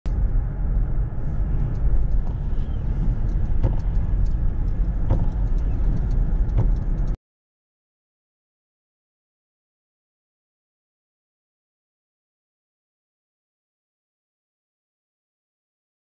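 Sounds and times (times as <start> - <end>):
car cabin road rumble: 0.1 - 7.2
windscreen wiper knocks: 2.1 - 7.2.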